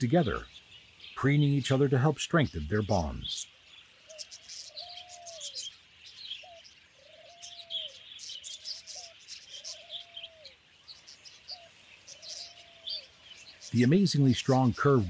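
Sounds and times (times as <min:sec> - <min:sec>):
high bird chirps: 0:00.0 - 0:15.0.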